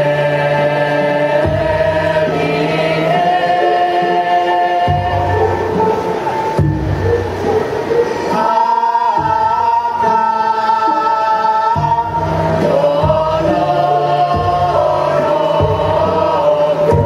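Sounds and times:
women singing together: 0:00.0 - 0:17.0.

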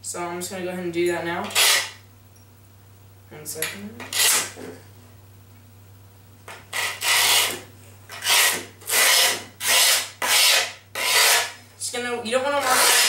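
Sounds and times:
tool scraping skateboard grip tape: 0:01.4 - 0:02.0, 0:04.0 - 0:04.6, 0:06.7 - 0:11.6, 0:12.6 - 0:13.0.

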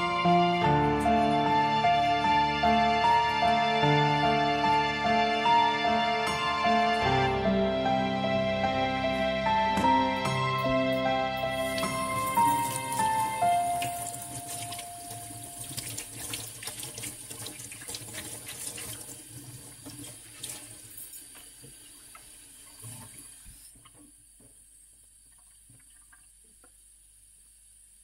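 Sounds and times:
cloth rinsed and squeezed: 0:11.5 - 0:24.0
tap water splashing into sink: 0:13.8 - 0:24.6.

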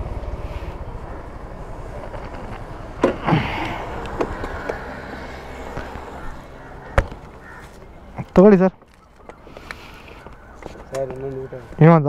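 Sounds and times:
scooter engine idling: 0:00.0 - 0:08.1.

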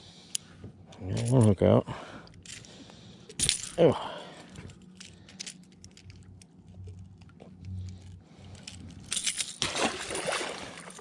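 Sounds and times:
fish splashing into water: 0:09.6 - 0:11.0.

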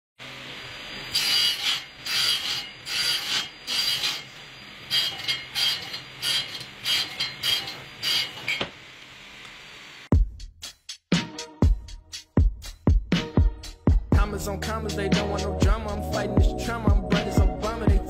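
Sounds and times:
table saw cutting wood: 0:00.2 - 0:10.0
table saw running: 0:00.2 - 0:10.0.

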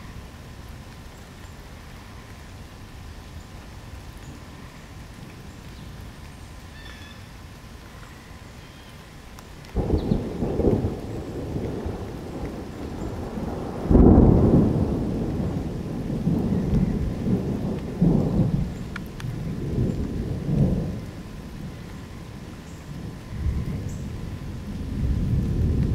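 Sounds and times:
thunder rumbling: 0:09.7 - 0:25.9.

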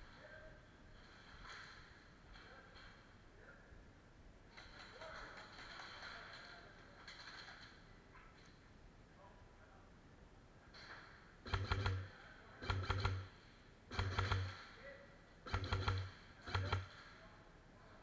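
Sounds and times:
airsoft rifle bursts: 0:11.4 - 0:14.7, 0:15.4 - 0:17.1.

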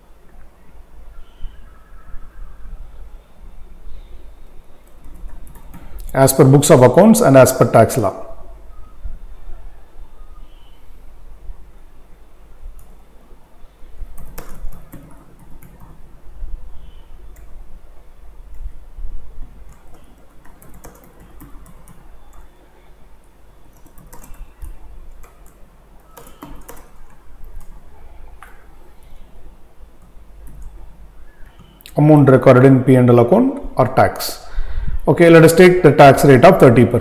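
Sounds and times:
low steady hum: 0:00.0 - 0:37.0
keyboard typing: 0:04.8 - 0:06.2, 0:14.0 - 0:16.2, 0:17.3 - 0:17.6, 0:19.4 - 0:22.7, 0:23.6 - 0:29.3, 0:30.0 - 0:32.0.

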